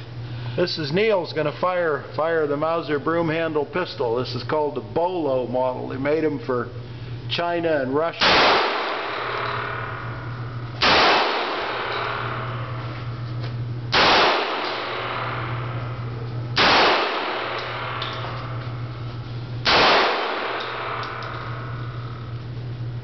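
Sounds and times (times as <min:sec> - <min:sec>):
pistol shots ringing indoors: 0:08.2 - 0:12.8, 0:13.9 - 0:18.9, 0:19.6 - 0:22.4.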